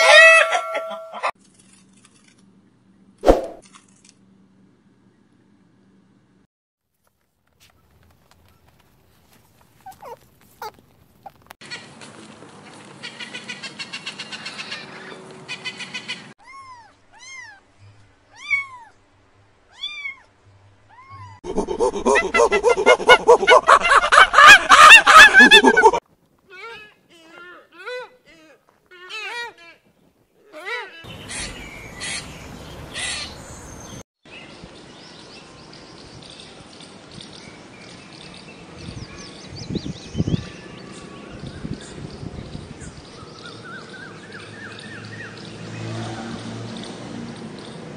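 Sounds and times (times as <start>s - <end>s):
kittens mewing: 9.8s - 11.4s
harsh noisy bird calls: 13.0s - 16.3s, 31.0s - 34.0s
songbirds chirping rapidly: 31.1s - 45.8s.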